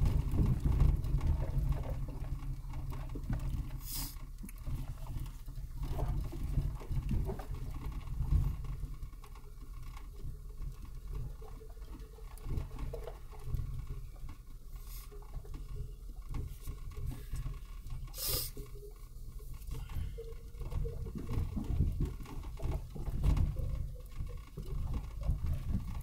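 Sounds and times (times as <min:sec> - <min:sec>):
short hissing burst: 0:03.8 - 0:04.2, 0:18.2 - 0:18.6.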